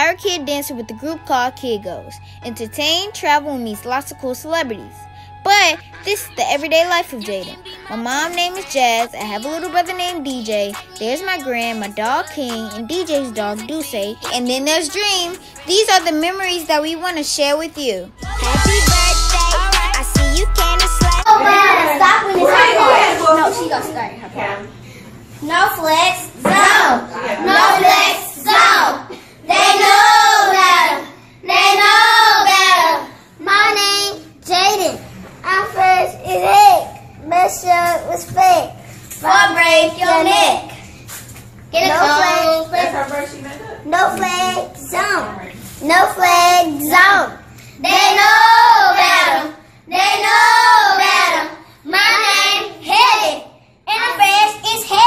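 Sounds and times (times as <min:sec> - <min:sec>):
child singing: 0:05.5 - 0:23.1, 0:45.8 - 0:53.4.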